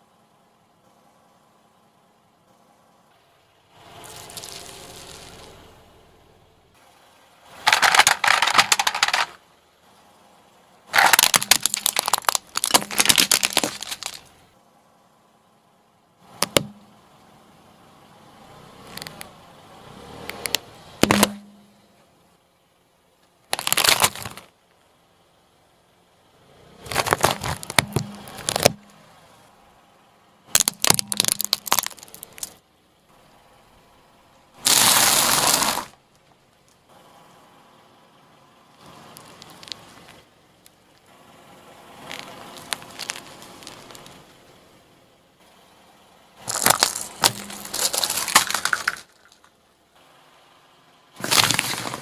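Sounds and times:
tyre crushing objects: 7.6 - 9.4, 11.0 - 14.2, 21.0 - 21.4, 23.6 - 24.5, 26.8 - 28.9, 30.6 - 32.6, 34.6 - 36.0, 46.4 - 49.4, 51.2 - 52.0.

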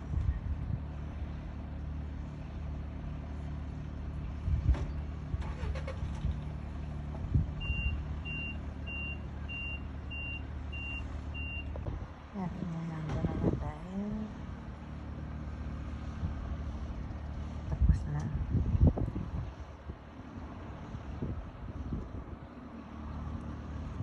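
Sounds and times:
engine running steadily: 0.0 - 24.0
short high warning beeps: 7.6 - 11.7.

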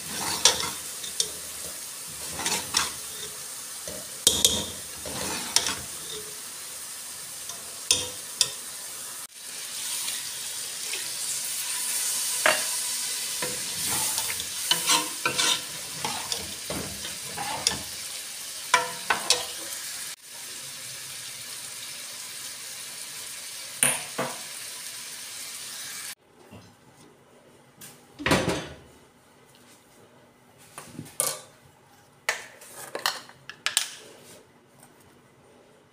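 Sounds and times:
spoon clinking and scraping pot: 0.0 - 6.4, 7.5 - 8.6, 13.4 - 18.0, 18.7 - 19.6
frying sizzle: 0.0 - 26.2.

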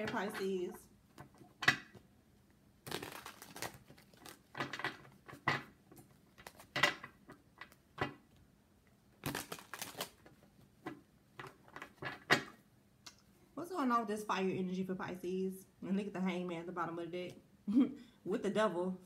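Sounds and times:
cards being shuffled: 2.8 - 8.2, 9.2 - 12.5.

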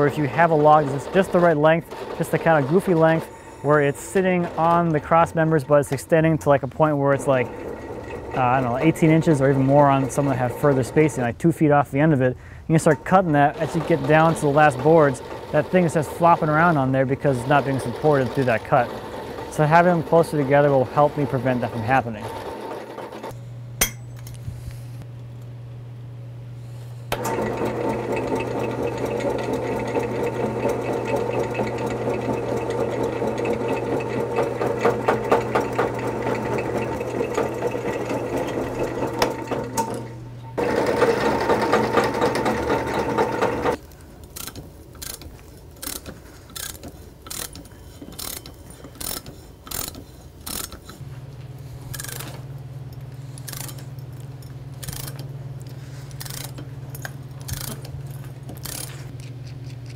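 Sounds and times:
drill press drilling into steel: 0.0 - 5.2, 7.0 - 11.2, 12.8 - 24.0, 27.1 - 43.8.

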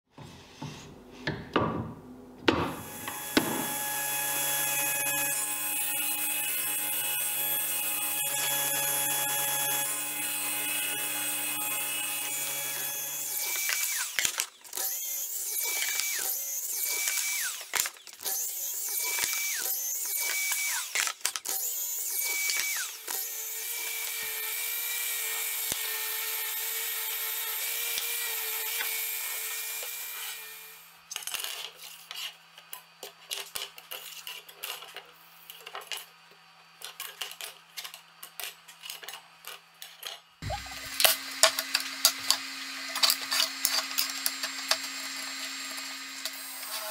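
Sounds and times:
table saw cutting wood: 2.5 - 31.0, 40.4 - 46.9
miter saw cutting with whine: 2.8 - 31.0, 40.4 - 46.9.

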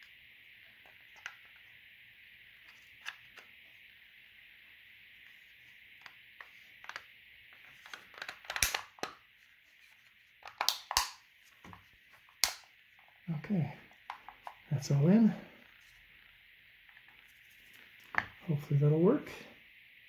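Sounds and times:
faint steady hiss: 0.0 - 20.0
plastic clicks and snaps: 7.8 - 9.2, 10.4 - 11.2, 12.4 - 12.7.

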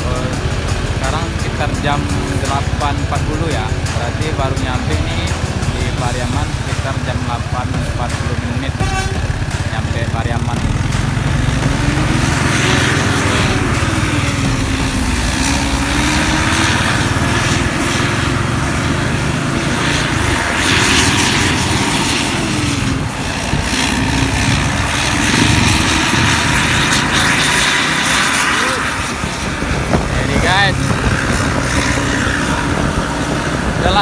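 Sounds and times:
bus diesel engine exhaust: 0.0 - 34.0.

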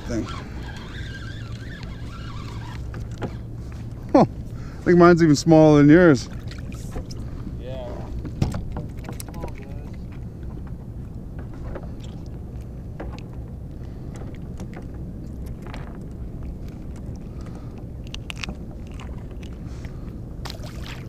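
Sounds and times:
steady low rumble: 0.0 - 21.0
water splashing against plastic hull: 8.1 - 10.7.

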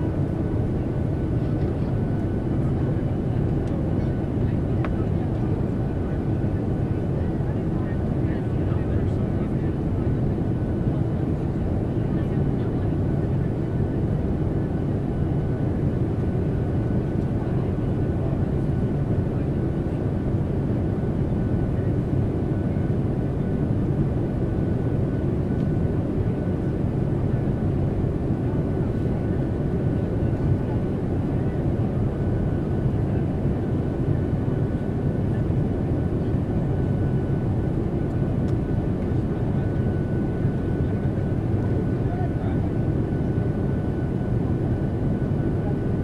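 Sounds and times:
airplane engine and airflow rumble: 0.0 - 46.0.

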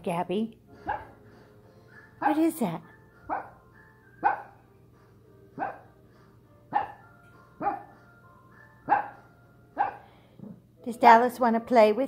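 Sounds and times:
small dog barking: 0.9 - 1.1, 3.3 - 3.6, 4.2 - 4.6, 5.6 - 5.9, 6.7 - 7.0, 7.6 - 7.9, 8.9 - 9.2, 9.8 - 10.0.

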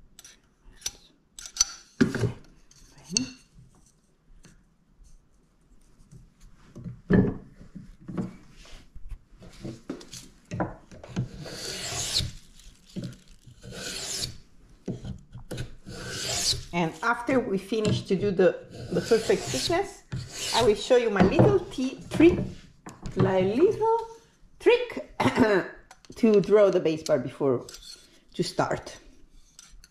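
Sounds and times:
hand plane shaving wood: 11.2 - 12.4, 13.6 - 14.4, 15.5 - 16.7, 18.7 - 20.8.

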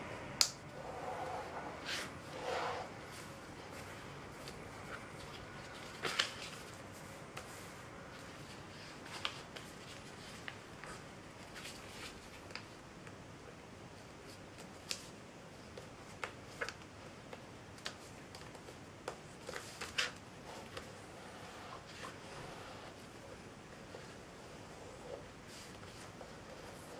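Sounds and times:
paper crinkling and tapping: 15.7 - 20.9.

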